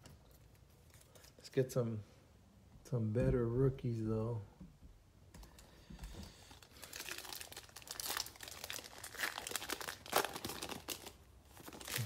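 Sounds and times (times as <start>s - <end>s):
foil wrapper tearing and crinkling: 6.5s - 12.0s.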